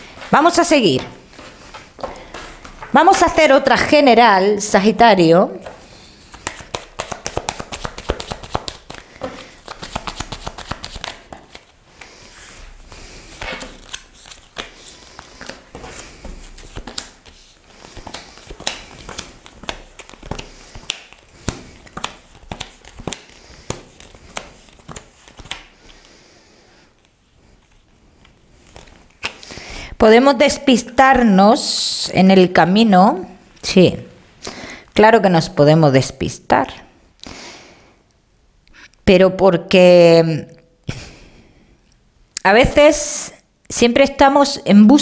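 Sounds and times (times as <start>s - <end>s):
cards being shuffled: 5.6s - 26.2s, 27.0s - 29.6s.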